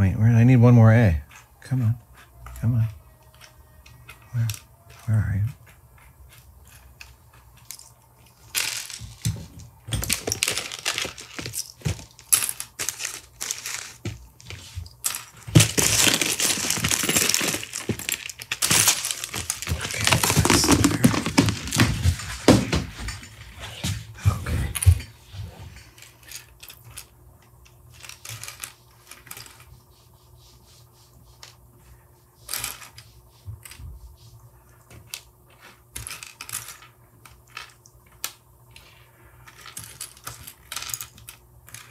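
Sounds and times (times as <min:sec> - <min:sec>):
plastic pieces clicking and clattering: 0:06.3 - 0:21.9, 0:26.0 - 0:29.7, 0:34.9 - 0:41.9.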